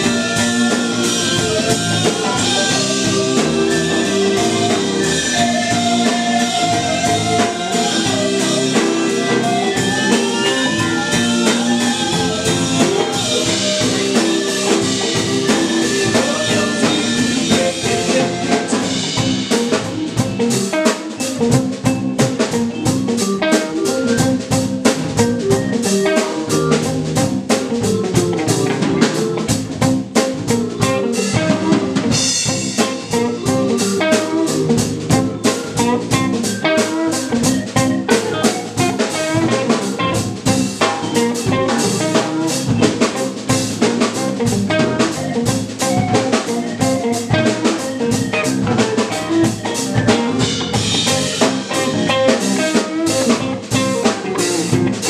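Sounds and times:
live band playing loudly: 0.0s - 55.0s.

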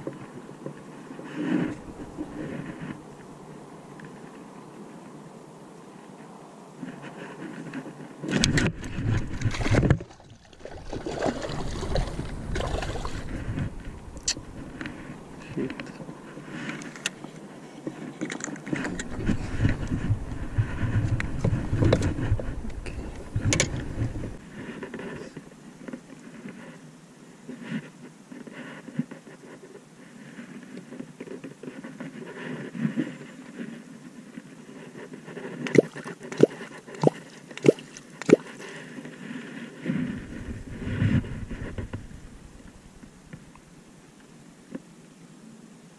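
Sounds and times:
fishing gear clicks and rattles: 8.3s - 20.0s.

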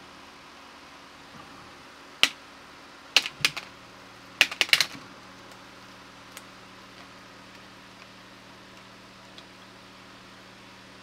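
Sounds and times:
plastic clips clicking and snapping: 4.4s - 5.0s.

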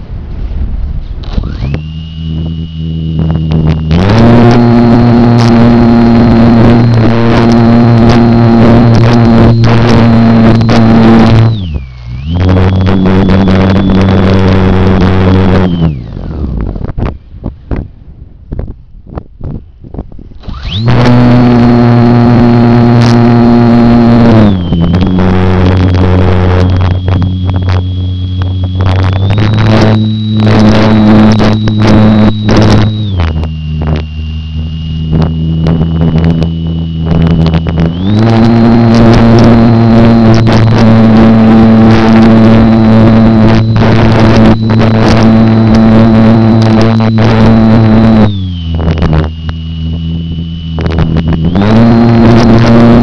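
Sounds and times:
model plane motor and propeller: 1.1s - 17.8s, 20.3s - 53.0s.

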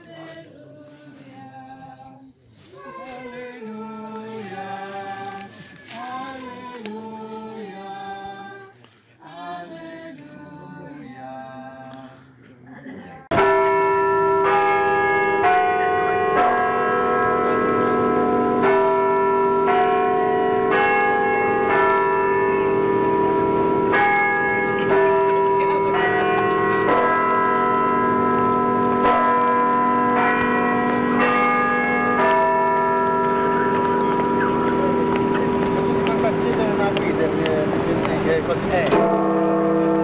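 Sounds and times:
tuned bells playing melody: 13.4s - 36.4s.

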